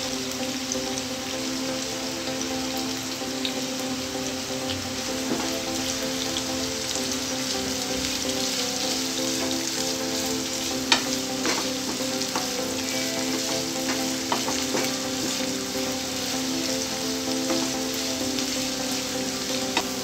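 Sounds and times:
onions sizzling in hot oil: 0:00.0 - 0:20.0
spatula stirring in pan: 0:08.5 - 0:20.0.

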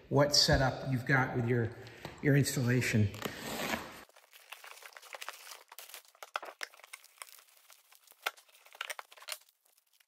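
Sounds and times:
cardboard and foam crinkling: 0:03.1 - 0:10.0.

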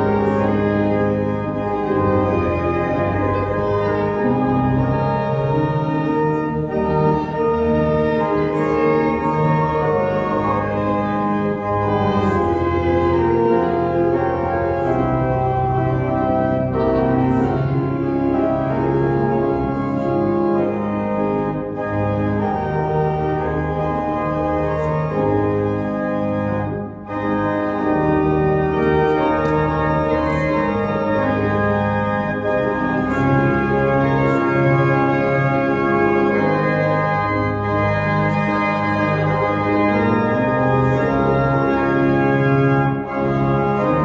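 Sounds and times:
church organ playing hymn: 0:00.0 - 0:44.0.

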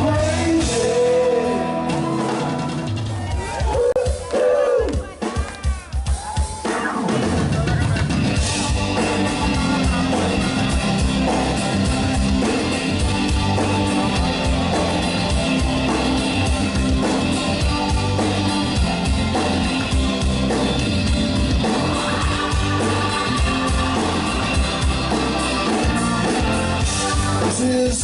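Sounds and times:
electric guitars: 0:00.0 - 0:03.8, 0:06.7 - 0:28.0
bass guitar: 0:00.0 - 0:05.2, 0:05.8 - 0:28.0
drum kit: 0:00.0 - 0:28.0.

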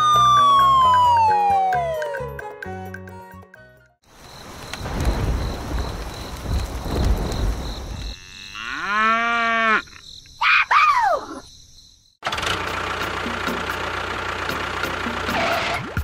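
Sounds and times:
rumbling noise: 0:04.4 - 0:08.2.

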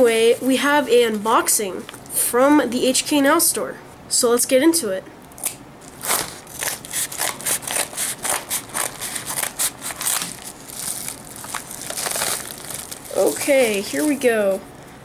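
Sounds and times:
paper crinkling: 0:05.8 - 0:14.3
scissors snipping paper: 0:06.1 - 0:10.4.

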